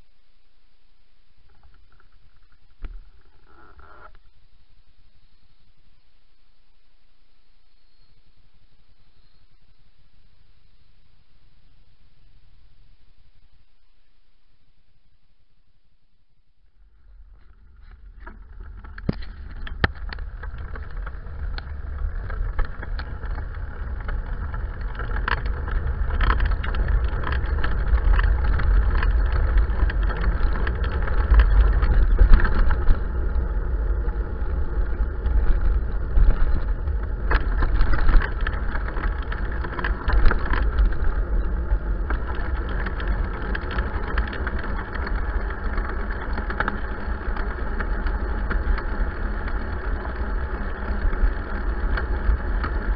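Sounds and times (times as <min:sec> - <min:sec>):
bicycle tyre rumble on tarmac: 0:16.7 - 0:52.9
wind buffeting microphone: 0:17.1 - 0:52.9
bicycle knocks and rattles: 0:17.2 - 0:52.9.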